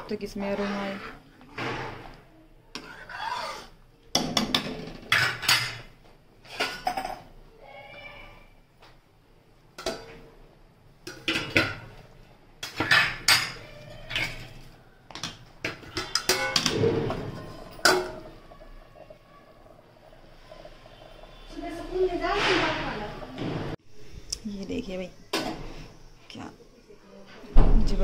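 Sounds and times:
ladle scraping a steel pot: 0:00.1 - 0:03.8, 0:12.6 - 0:14.7, 0:15.6 - 0:23.8.

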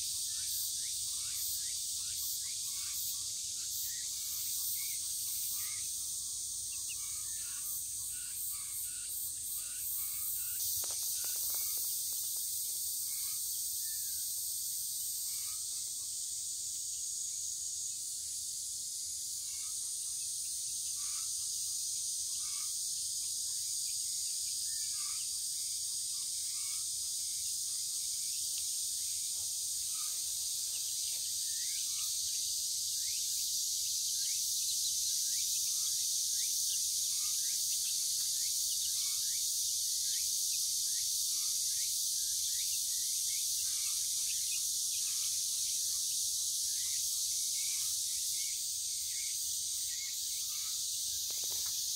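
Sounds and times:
cicadas chorus: 0:00.0 - 0:51.9
chicks peeping: 0:10.8 - 0:12.2.

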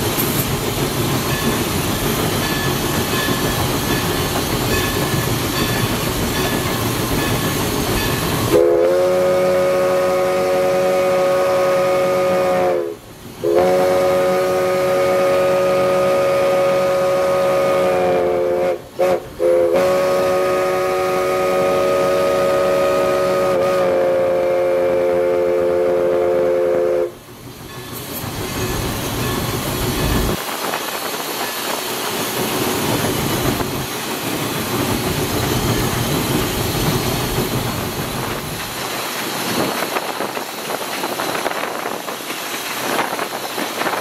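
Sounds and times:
locomotive running rumble: 0:00.0 - 0:44.0
steam hiss: 0:00.0 - 0:44.0
steam whistle blasts: 0:08.5 - 0:27.2.

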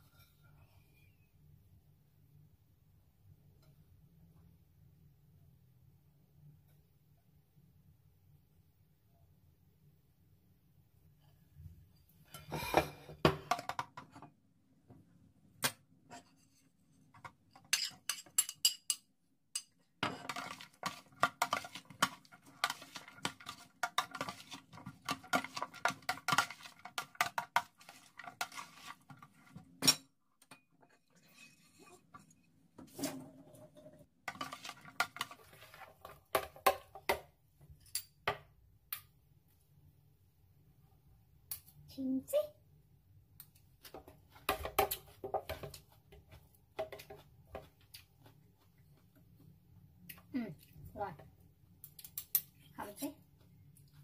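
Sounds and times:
metal spoons clinking in a bowl: 0:17.5 - 0:28.6.

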